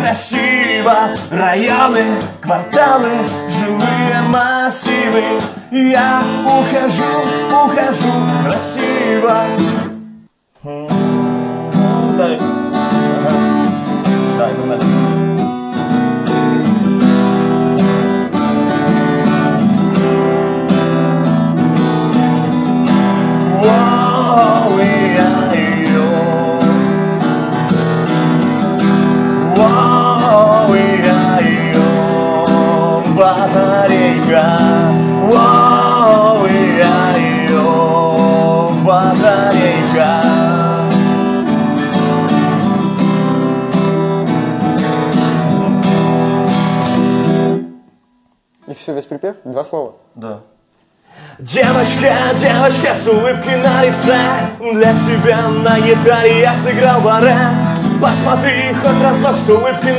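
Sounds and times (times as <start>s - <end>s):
man singing: 0.0s - 10.0s, 10.6s - 15.2s, 22.4s - 27.4s, 28.8s - 41.5s, 51.2s - 59.9s
acoustic guitar strummed: 0.0s - 48.3s, 51.1s - 59.9s.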